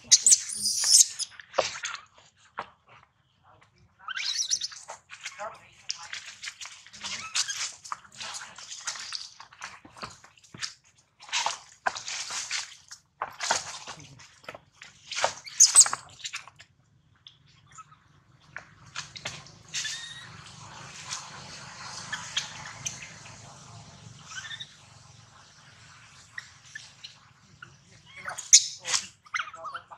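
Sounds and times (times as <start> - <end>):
monkeys making noisy bursts: 0.0 - 1.3.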